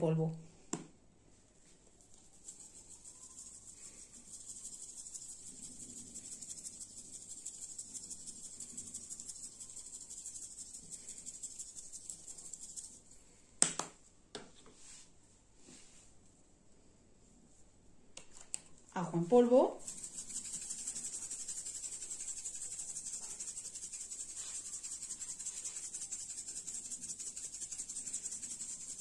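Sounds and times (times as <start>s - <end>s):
powder rattling from shaker: 1.9s - 13.4s, 18.4s - 29.0s.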